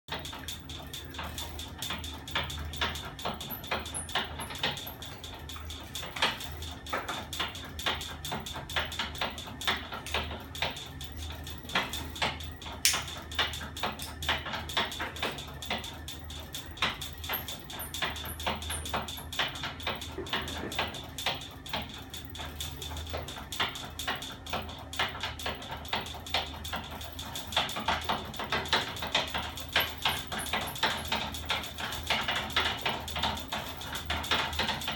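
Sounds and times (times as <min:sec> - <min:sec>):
mechanical clicks and knocks: 0:00.1 - 0:34.9.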